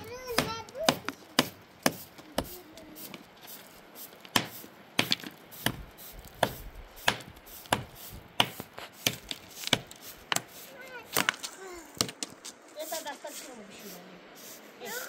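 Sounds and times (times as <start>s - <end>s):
sharp chopping strikes: 0.3s - 2.5s, 4.3s - 5.8s, 6.4s - 10.5s.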